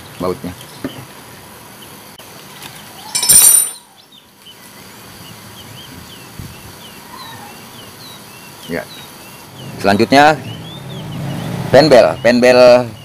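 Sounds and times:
faint bird chirps: 0:02.9 - 0:13.0
high metallic ring: 0:03.1 - 0:03.9.

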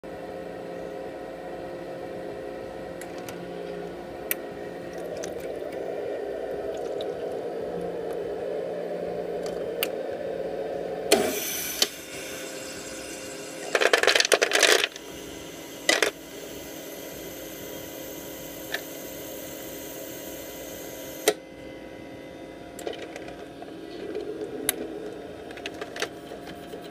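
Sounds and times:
ice maker running: 0:02.5 - 0:09.9, 0:11.1 - 0:26.9
ice maker clunk: 0:13.6 - 0:15.0
ice cubes clattering into basket: 0:13.7 - 0:14.9.

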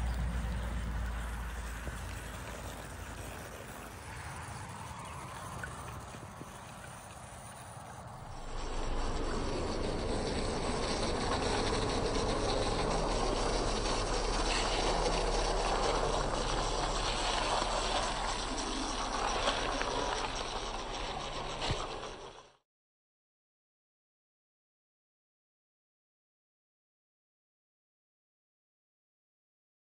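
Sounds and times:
model train motor whirring: 0:00.0 - 0:22.6.

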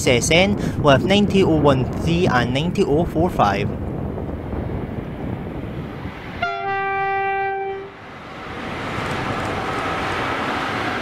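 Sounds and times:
train rumbling on rails: 0:00.0 - 0:11.0
locomotive horn: 0:06.4 - 0:08.0.

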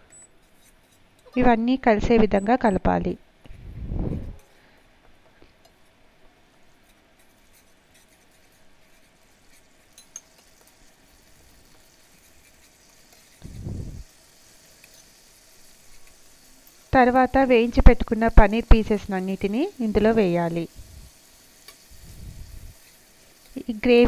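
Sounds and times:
gravy sizzling in a pan: 0:05.7 - 0:24.0.

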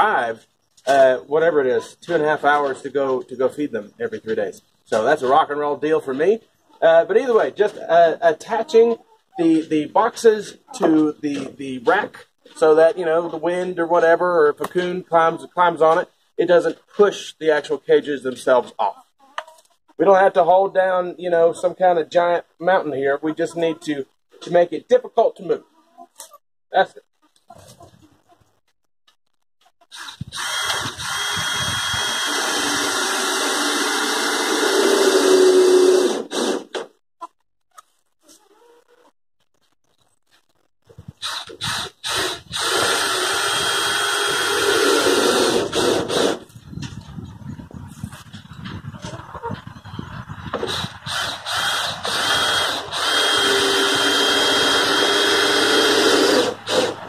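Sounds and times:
cordless drill driving a screw: 0:29.9 - 0:36.7, 0:41.2 - 0:46.4, 0:50.7 - 0:57.0.

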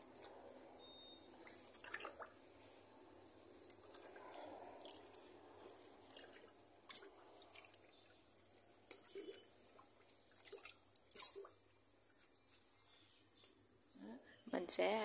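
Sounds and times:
water sloshing and squelching: 0:01.3 - 0:02.7, 0:03.6 - 0:11.6.

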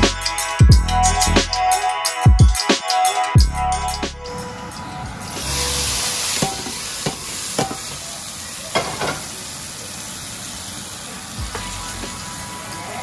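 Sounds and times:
hot oil sizzling in curry: 0:05.2 - 0:13.0.

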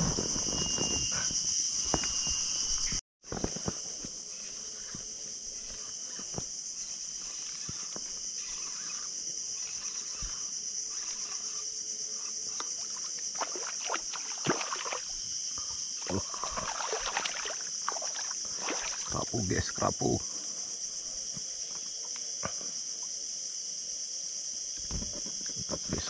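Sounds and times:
high insect drone: 0:00.0 - 0:26.0
fish splashing: 0:12.8 - 0:15.2, 0:16.0 - 0:19.1.

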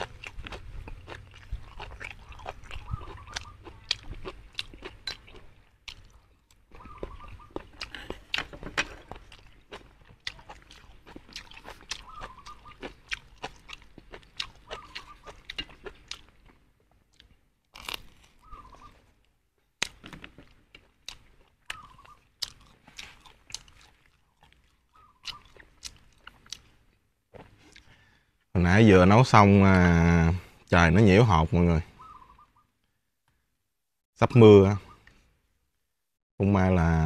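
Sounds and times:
man chewing and crunching food: 0:00.0 - 0:28.3.

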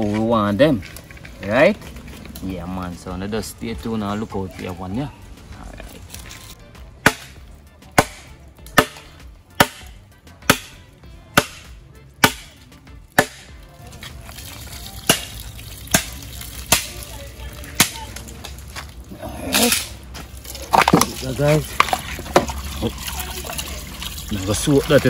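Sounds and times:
machete chopping: 0:07.0 - 0:13.6, 0:15.0 - 0:17.1, 0:17.7 - 0:18.3, 0:19.4 - 0:20.0.

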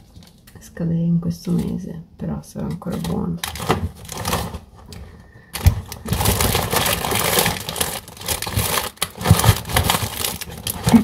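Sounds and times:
paper sachets rustling: 0:02.9 - 0:11.0.

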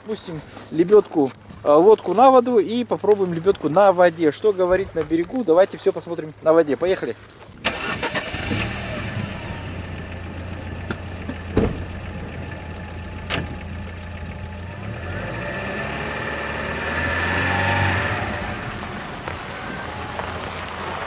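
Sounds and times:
suv engine idling: 0:07.7 - 0:21.0
sharp knocks: 0:10.9 - 0:11.9.

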